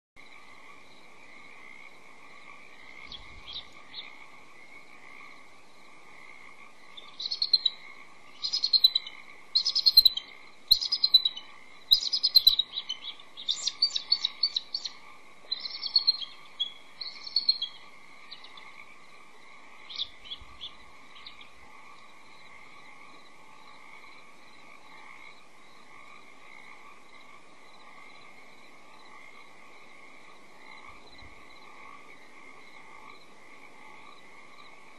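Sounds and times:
eagles chittering calls: 6.6s - 22.1s.

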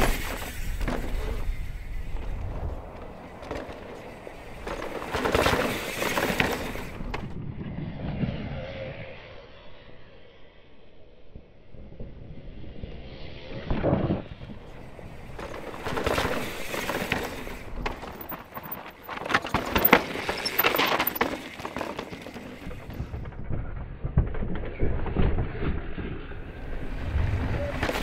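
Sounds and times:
bike knocks: 0.0s - 7.2s, 15.3s - 23.2s
bike tyres skidding on dirt: 0.0s - 7.8s, 14.0s - 23.4s, 24.6s - 28.0s.

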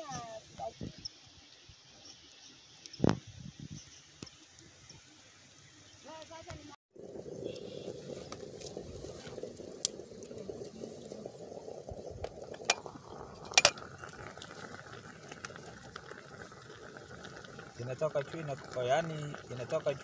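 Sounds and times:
rushing bubbling water: 6.9s - 20.0s.

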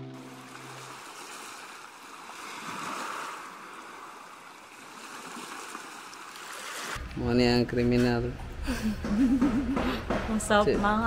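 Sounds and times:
background music: 0.0s - 1.1s
sea surf washing on beach: 0.0s - 7.0s.

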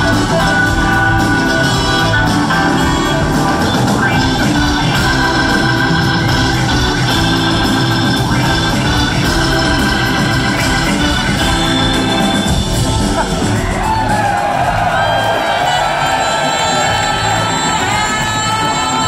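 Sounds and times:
organ sustained chords: 0.0s - 14.0s
live rock band: 0.0s - 19.0s.

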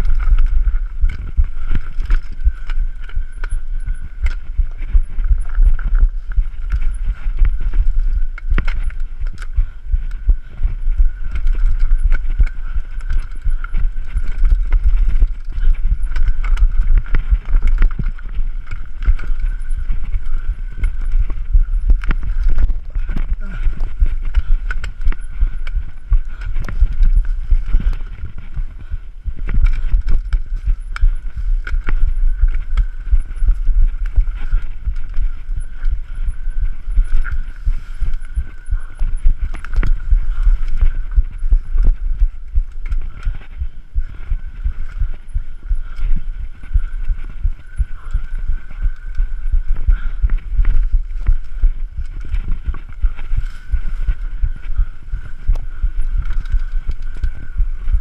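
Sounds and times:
bike rattling over stones: 0.0s - 46.0s
wind rumble on microphone: 0.0s - 58.0s.

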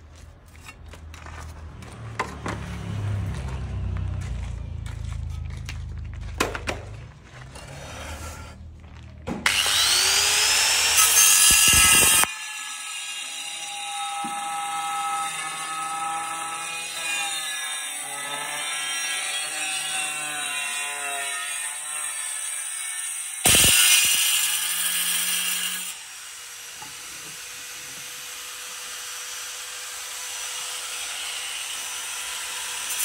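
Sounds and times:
angle grinder cutting tile: 9.4s - 33.0s.

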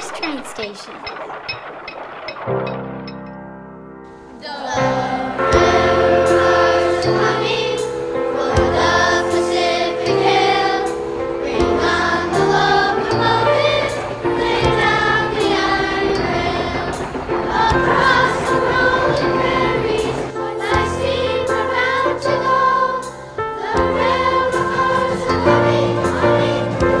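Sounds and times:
choir singing with instruments: 4.3s - 27.0s.

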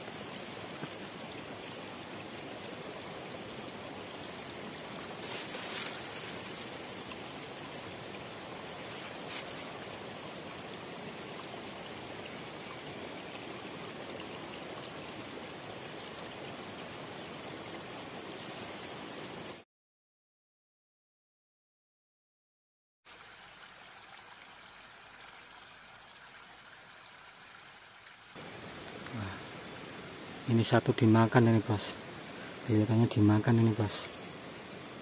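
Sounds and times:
stream running over rocks: 0.0s - 19.6s, 23.1s - 35.0s
rustling: 5.2s - 6.8s, 8.7s - 9.8s.

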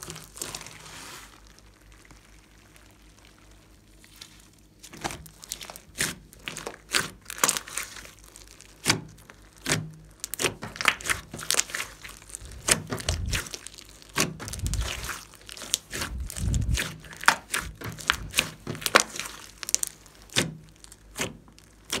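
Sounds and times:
slime squelching: 0.0s - 22.0s.

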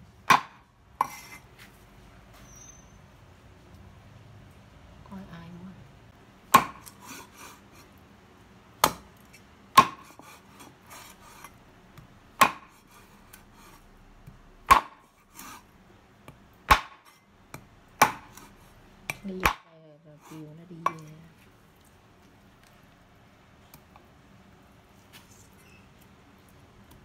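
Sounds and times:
cleaver chopping on wooden board: 0.2s - 1.3s, 6.5s - 7.3s, 8.8s - 9.1s, 9.7s - 10.4s, 12.0s - 12.9s, 14.3s - 15.6s, 16.3s - 18.5s, 19.1s - 19.7s.

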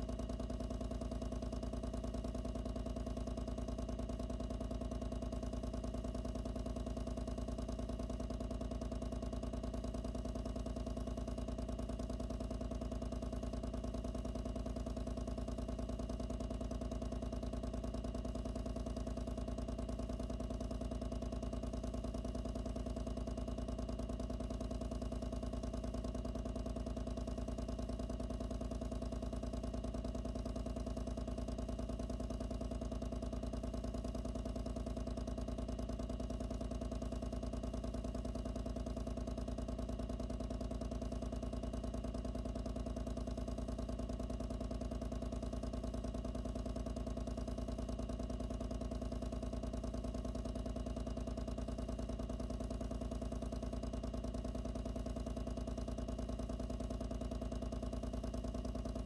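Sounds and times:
water pump humming and buzzing: 0.0s - 59.0s.

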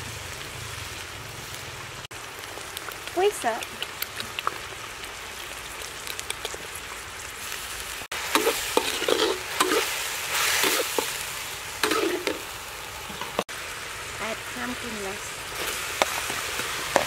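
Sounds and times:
beef sizzling in a wok: 0.0s - 17.0s
metal spatula scraping wok: 8.2s - 12.5s.

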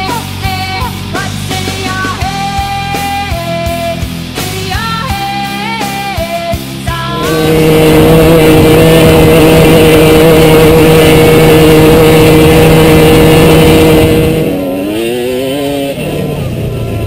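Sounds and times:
music track: 6.8s - 11.9s
dirt bike engine high revs: 6.9s - 17.0s.

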